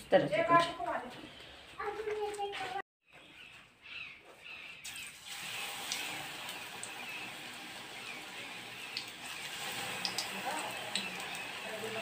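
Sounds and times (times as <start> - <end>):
oil popping: 4.8 - 12.0
batter sizzling in hot oil: 4.9 - 12.0.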